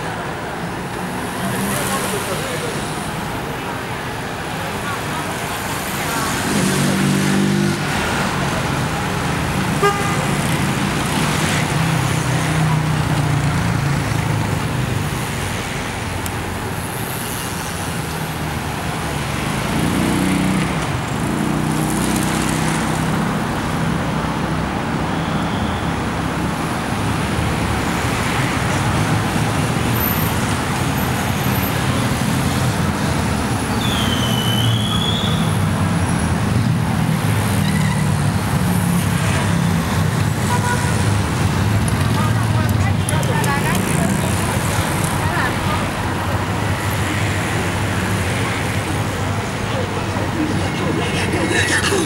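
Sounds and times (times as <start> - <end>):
road traffic hum: 0.0 - 52.0.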